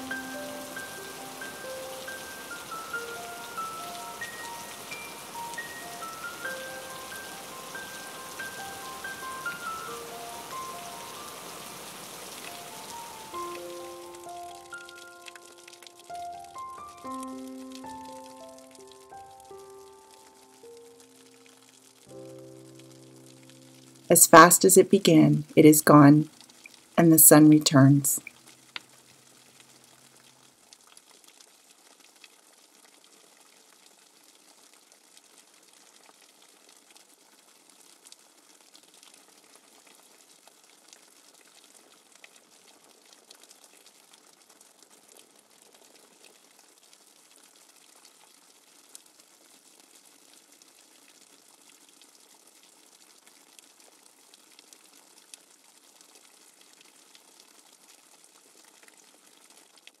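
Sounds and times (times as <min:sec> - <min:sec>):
water drops pattering: 0:12.4 - 0:19.2.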